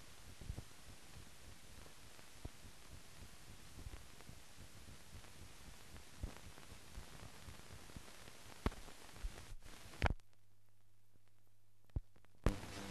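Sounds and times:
film hiss: 0.0 - 12.9
steady low hum: 0.0 - 12.9
clicks and pops: 6.0 - 10.4, 11.2 - 12.8.

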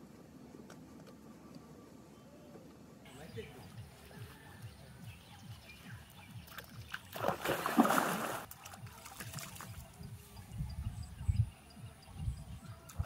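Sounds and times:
water sloshing: 6.3 - 10.0
loud water splash: 7.2 - 8.5.

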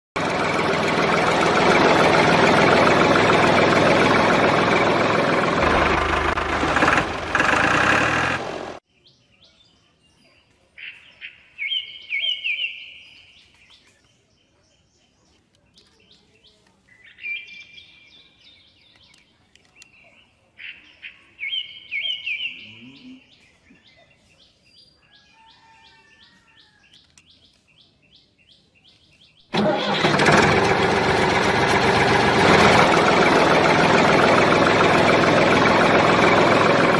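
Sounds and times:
birds chirping: 6.8 - 29.5.

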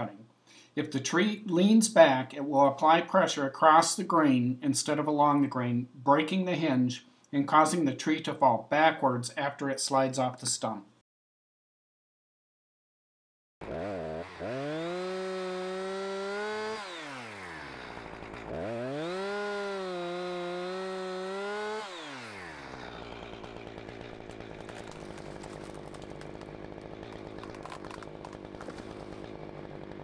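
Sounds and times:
two-stroke chainsaw revving and idling: 13.6 - 30.0.

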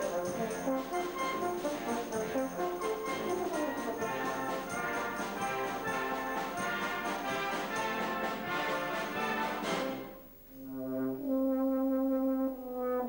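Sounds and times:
brass band playing: 0.0 - 13.0
euphonium solo: 2.8 - 13.0.

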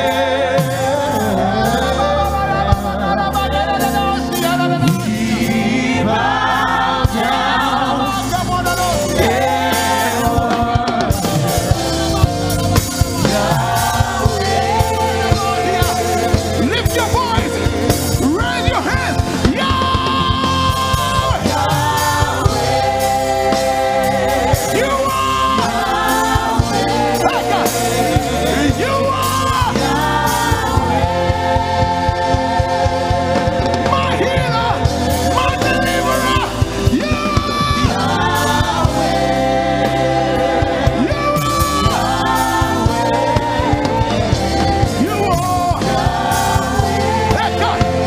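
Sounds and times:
man singing lead: 0.0 - 6.2, 13.2 - 22.7, 24.2 - 31.0, 33.6 - 39.0, 40.7 - 48.0
backing vocalists singing: 0.0 - 48.0
band with keyboard: 0.0 - 48.0.

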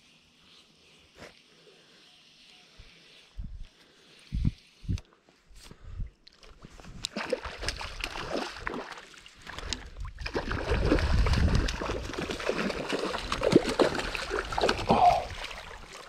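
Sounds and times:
water sloshing and splashing: 6.3 - 16.0.

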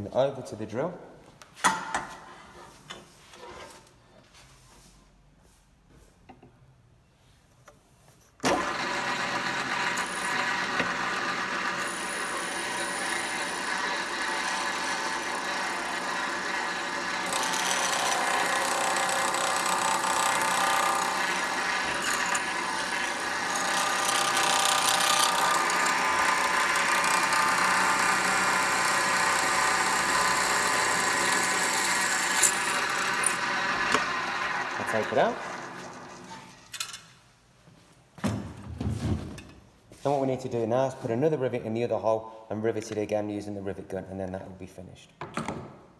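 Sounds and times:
pillar drill running: 8.4 - 36.5
drill bit cutting metal: 8.5 - 36.2.

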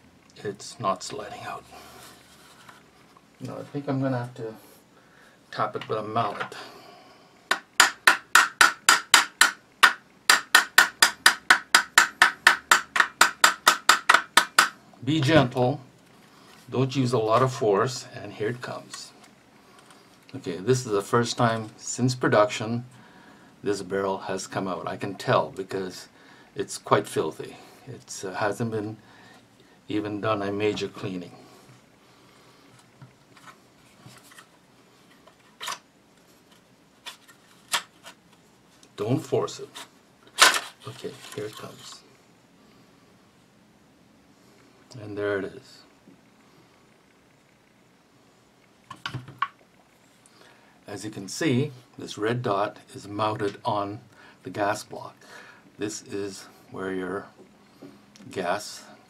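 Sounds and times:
rifle parts clicking and scraping: 39.7 - 42.1.

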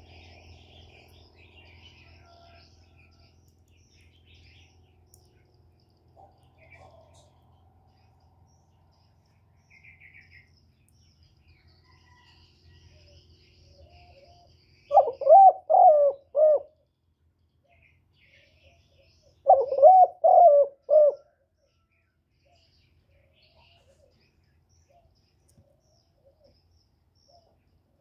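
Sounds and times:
faint bird chirps: 3.8 - 27.8
dove cooing: 13.9 - 16.8, 19.4 - 21.4.

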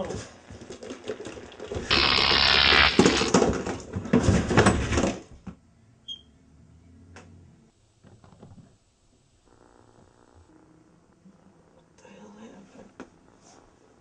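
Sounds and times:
loud crackling: 1.9 - 3.3
radio static hissing: 1.9 - 3.3.

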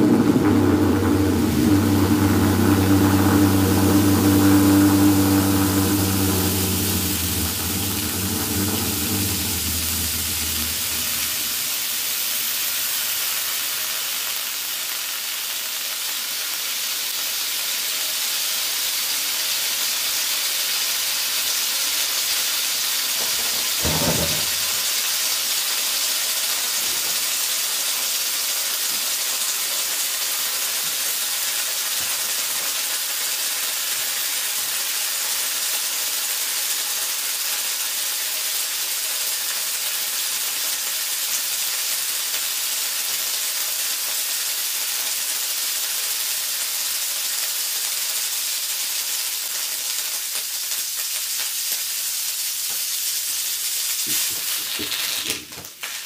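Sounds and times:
hot metal ball sizzling in butter: 0.0 - 56.0
brief loud pop: 23.2 - 24.8.

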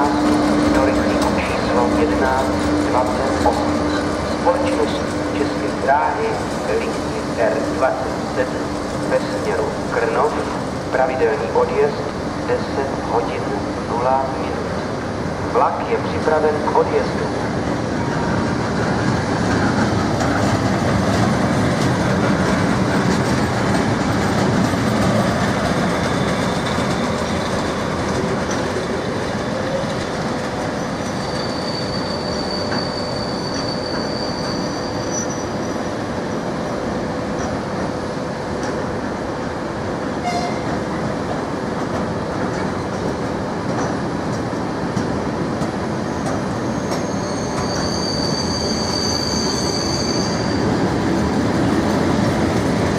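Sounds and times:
freight train wheels rumbling: 0.0 - 52.9
high wheel squeals: 30.7 - 36.0, 46.1 - 50.9.

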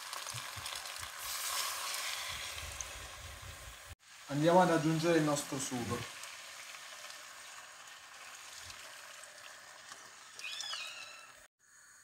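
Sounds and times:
sauce pouring: 0.0 - 11.3
food sizzling in a pot: 0.0 - 12.0
short high squeal: 10.4 - 11.5.

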